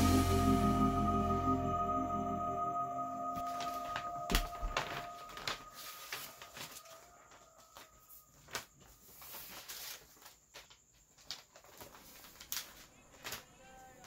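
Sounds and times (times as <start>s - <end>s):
wrapping paper rustling: 3.5s - 14.0s.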